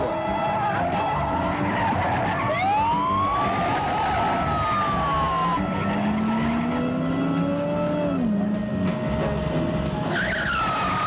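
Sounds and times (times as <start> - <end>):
car tyres squealing: 0.0 - 8.7, 9.9 - 11.0
car engine revving: 0.4 - 11.0.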